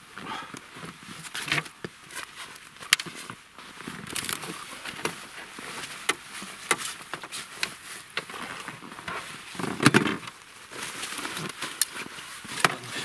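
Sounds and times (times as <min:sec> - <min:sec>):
rustling: 0:00.3 - 0:13.0
gear clicks and knocks: 0:01.2 - 0:05.2.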